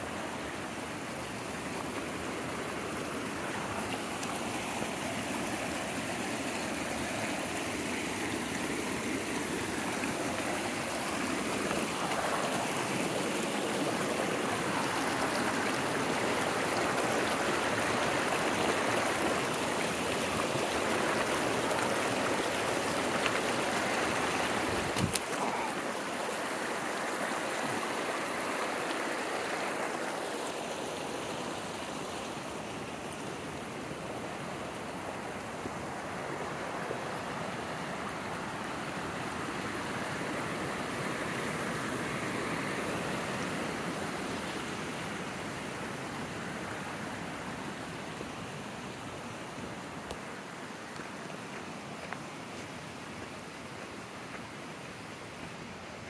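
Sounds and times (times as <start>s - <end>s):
stream rushing over rocks: 0.0s - 56.0s.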